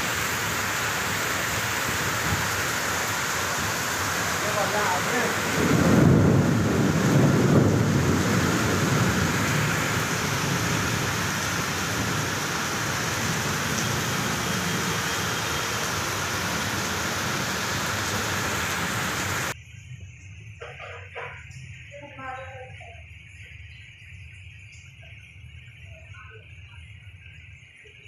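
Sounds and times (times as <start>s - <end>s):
heavy rain on pavement: 0.0s - 19.6s.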